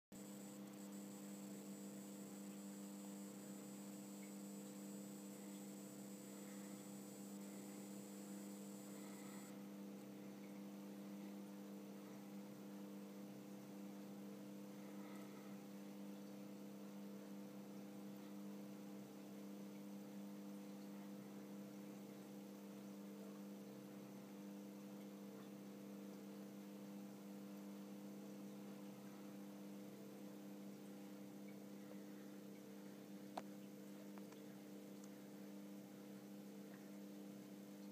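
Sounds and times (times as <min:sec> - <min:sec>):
faint high whine: 0:00.1 - 0:18.3, 0:26.1 - 0:33.5
faint electrical hum: 0:00.1 - 0:37.9.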